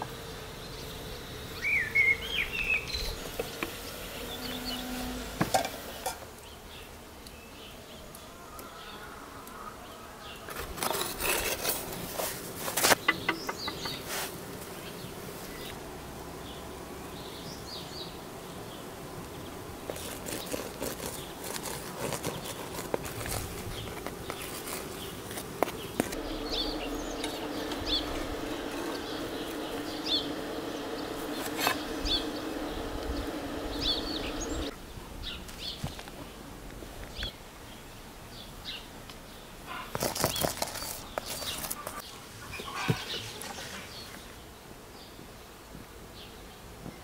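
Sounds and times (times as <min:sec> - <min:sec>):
steady buzzing drone: 0:00.0 - 0:06.2, 0:23.5 - 0:34.8
small birds chirping: 0:00.0 - 0:12.1, 0:12.8 - 0:15.8, 0:16.4 - 0:36.5, 0:37.1 - 0:45.3
spoon scraping a clay dish: 0:10.5 - 0:14.2, 0:19.9 - 0:32.6.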